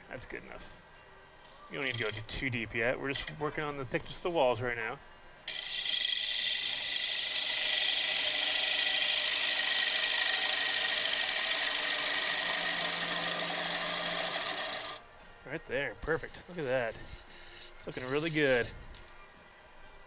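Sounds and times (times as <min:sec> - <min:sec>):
gouge cutting wood on a lathe: 0:01.8 - 0:02.3, 0:05.5 - 0:15.0, 0:16.1 - 0:18.7.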